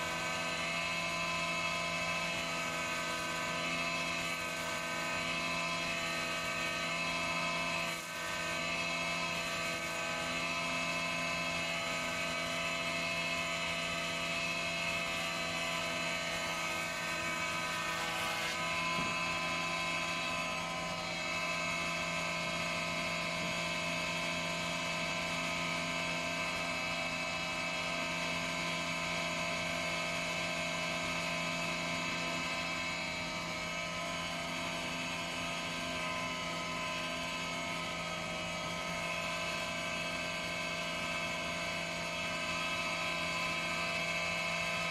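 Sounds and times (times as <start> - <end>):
hiss of planer cutting wood: 0.0 - 0.9, 1.6 - 12.4, 14.9 - 22.0
planer machine whine: 0.0 - 44.9.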